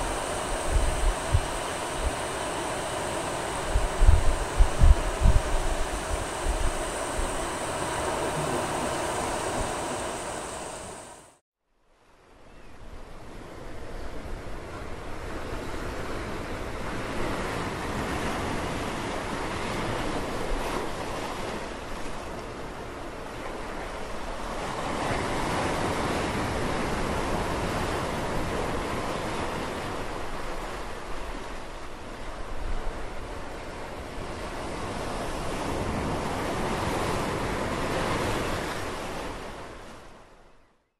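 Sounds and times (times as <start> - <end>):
ocean surf washing: 0.0 - 11.4, 13.1 - 40.4
waves breaking: 0.0 - 11.4, 14.4 - 40.3.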